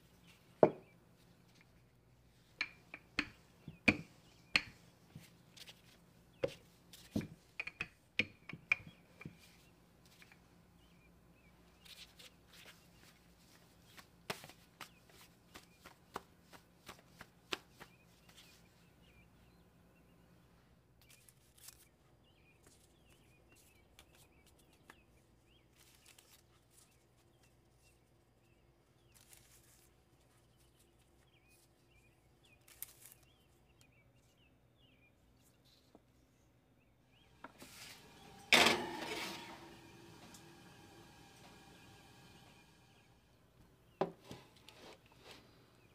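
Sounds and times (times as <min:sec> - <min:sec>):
dough rustling on parchment paper: 0:05.1 - 0:07.3, 0:21.0 - 0:33.6.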